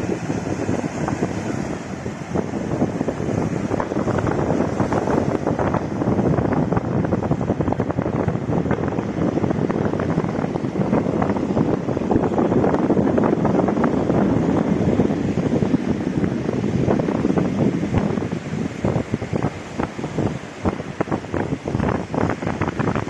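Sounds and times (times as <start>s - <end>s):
sea waves breaking on rocks: 0.0s - 12.8s
wind buffeting microphone: 0.0s - 23.0s.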